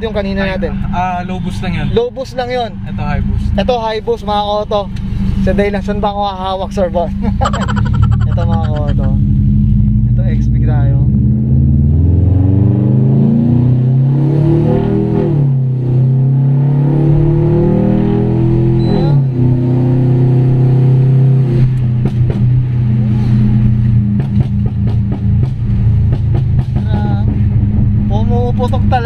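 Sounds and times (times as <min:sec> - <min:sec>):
car engine accelerating hard: 0:09.0 - 0:29.0.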